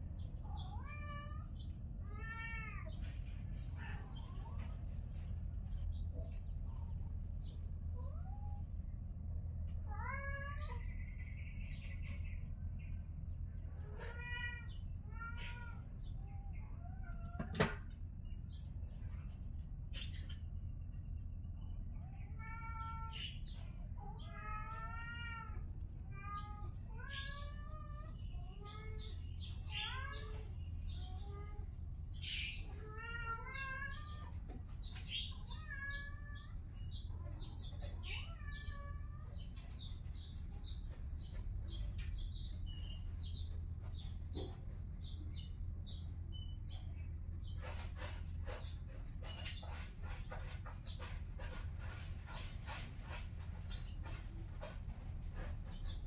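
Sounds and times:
kittens meowing: 0.0 - 8.8, 9.6 - 12.3, 13.4 - 19.4, 21.9 - 44.6.

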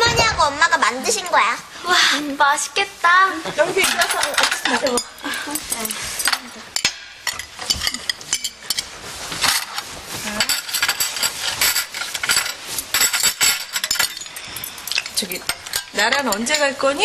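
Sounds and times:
chopsticks and plates clinking: 3.7 - 17.0.

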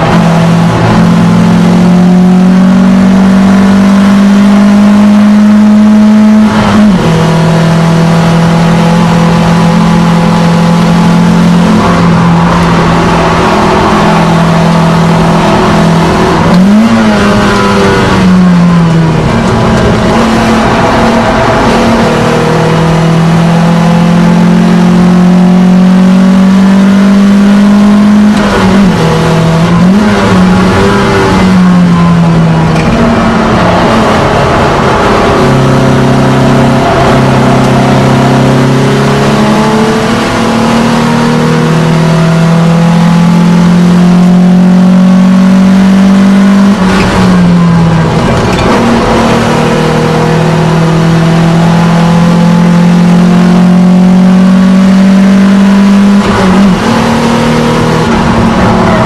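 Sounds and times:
car engine revving with gear changes: 0.0 - 59.0.

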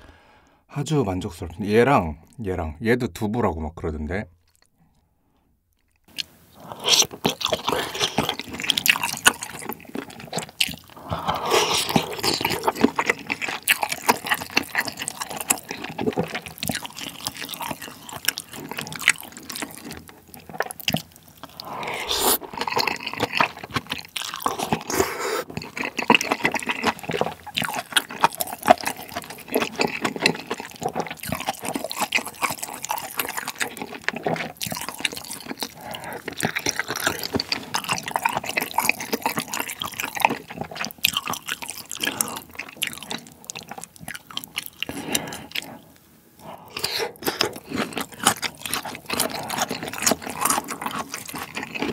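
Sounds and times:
wet chewing and slurping noodles: 5.8 - 51.9.

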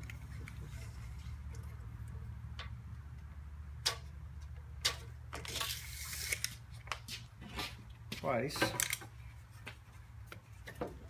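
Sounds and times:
low steady hum: 0.0 - 11.0
tape blade sliding back: 4.8 - 6.6.

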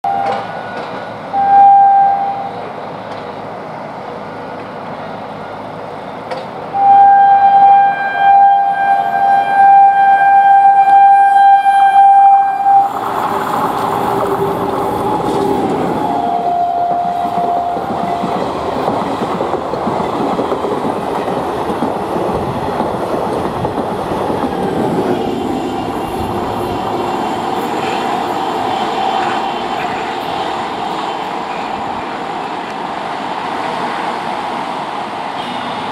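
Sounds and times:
train engine and wheels on track: 0.0 - 35.9
train horn blasts: 0.1 - 2.6, 6.7 - 13.0, 16.0 - 18.2, 27.6 - 31.8, 35.4 - 35.9.

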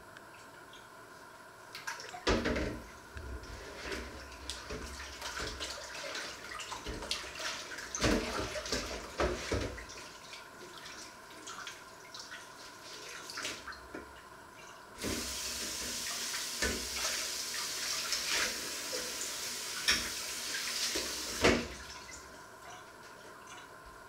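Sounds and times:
tap running into sink: 8.0 - 9.8, 15.0 - 17.0, 18.2 - 21.8
dishes clattering against sink: 19.8 - 20.2.

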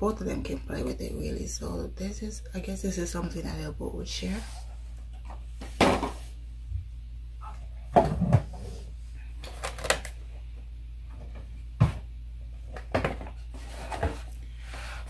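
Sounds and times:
boxes knocking and rustling: 12.7 - 14.3.

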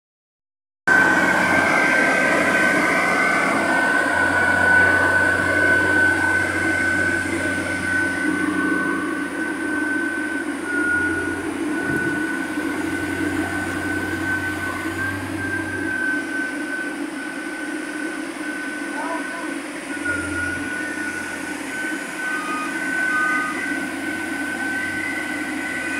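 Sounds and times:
drilling rig engine running: 0.9 - 25.9
steady high whine: 0.9 - 25.9.

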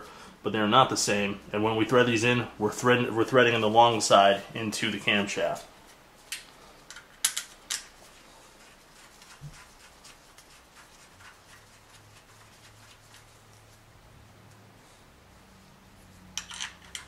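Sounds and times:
bolts scraping while threaded: 16.3 - 17.0.

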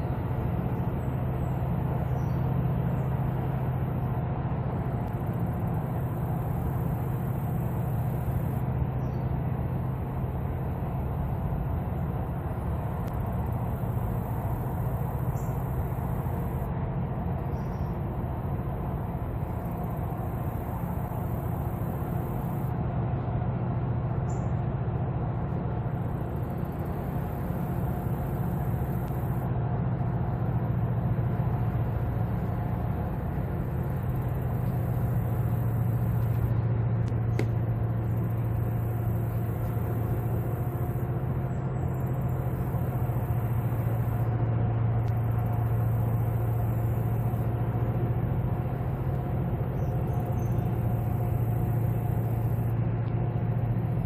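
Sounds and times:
diesel engines droning: 0.0 - 54.0.

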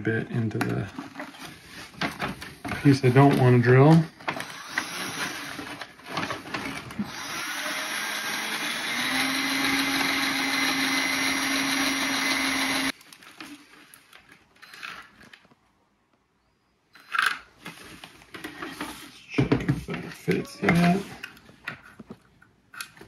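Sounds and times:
cordless drill drilling metal: 4.2 - 13.0.

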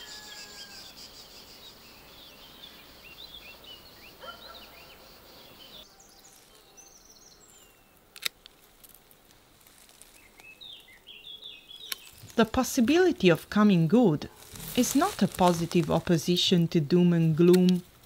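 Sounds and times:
small birds chirping: 0.0 - 8.1, 9.6 - 13.9.

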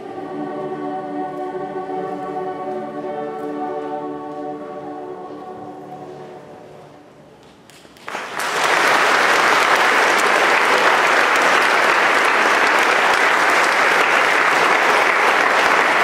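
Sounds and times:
audience applause: 8.0 - 16.0.

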